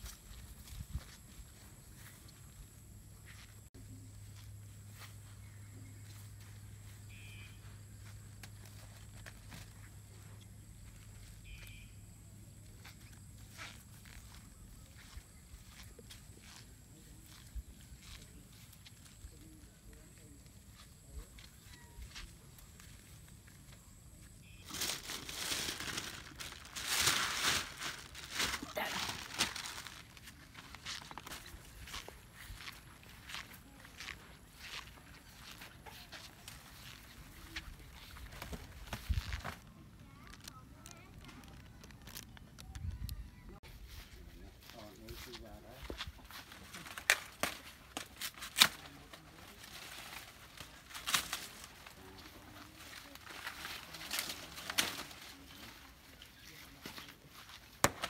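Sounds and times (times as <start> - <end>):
plastic bag crinkling: 24.4 - 31.5, 38.0 - 42.7
dry leaves tearing and crackling: 24.4 - 42.7, 46.3 - 58.0.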